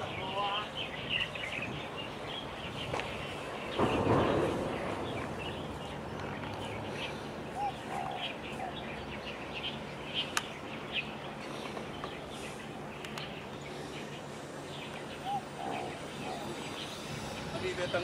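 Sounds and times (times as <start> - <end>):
low background noise: 0.0 - 18.0
small birds chirping: 0.0 - 18.0.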